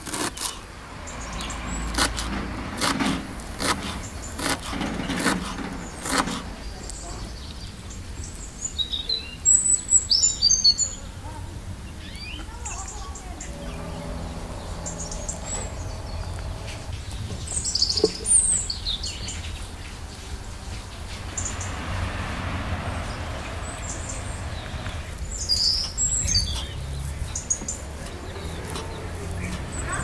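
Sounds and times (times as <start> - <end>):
small songbirds chirping: 0.7 - 2.1, 3.4 - 30.0
steady low rumble: 12.8 - 30.0.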